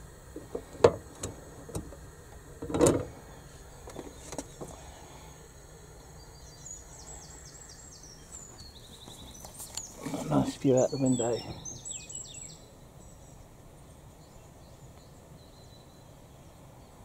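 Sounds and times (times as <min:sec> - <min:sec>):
metal clunk: 0:02.6 - 0:03.1
bird chirping: 0:06.1 - 0:17.0.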